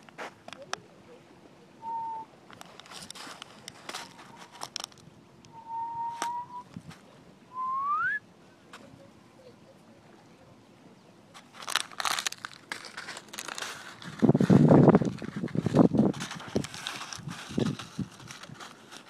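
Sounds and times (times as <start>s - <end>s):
whistled notes: 1.8s - 2.3s, 5.5s - 6.7s, 7.5s - 8.2s
plastic bottle crinkling: 2.6s - 5.1s, 11.4s - 19.0s.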